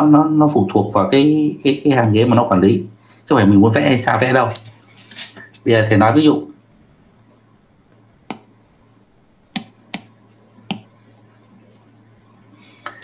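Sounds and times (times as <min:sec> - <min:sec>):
faint steady hum: 0:00.0 - 0:13.0
sharp taps: 0:09.5 - 0:10.1, 0:10.7 - 0:10.9.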